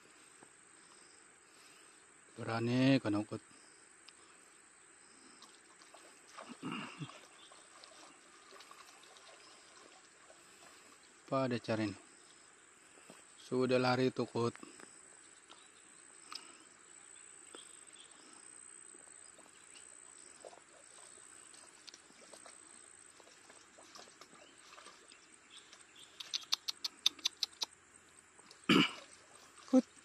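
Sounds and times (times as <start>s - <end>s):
dog splashing through water: 5.4s - 11.0s, 19.4s - 26.3s.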